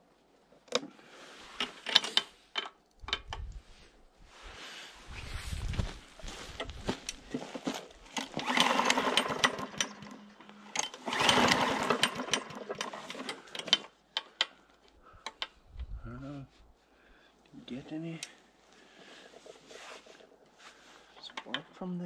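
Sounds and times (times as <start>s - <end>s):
recoil starter whirring rattle: 7.9s - 14.3s.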